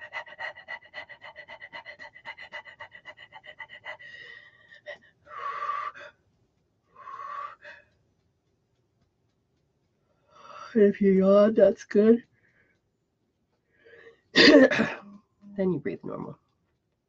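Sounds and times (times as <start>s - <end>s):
woman panting: 0.0s - 6.2s, 7.0s - 8.0s, 10.3s - 10.9s.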